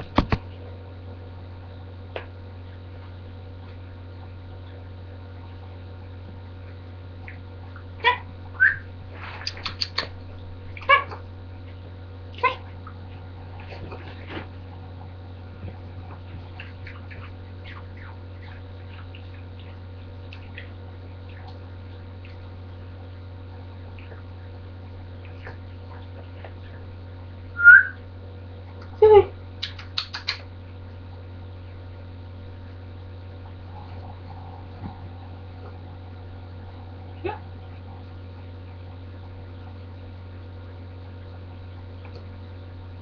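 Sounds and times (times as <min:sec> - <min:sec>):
low electrical hum: 0:00.0 - 0:43.0
dog yipping: 0:10.8 - 0:11.2
small dog whining: 0:10.8 - 0:11.2, 0:29.0 - 0:29.3
faint clicks: 0:29.6 - 0:30.5.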